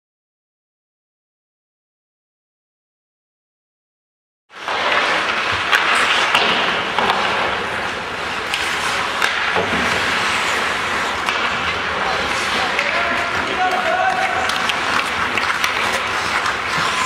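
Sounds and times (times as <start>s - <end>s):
skates scraping on ice: 4.5s - 17.0s
hockey stick and puck clicks: 4.6s - 17.0s.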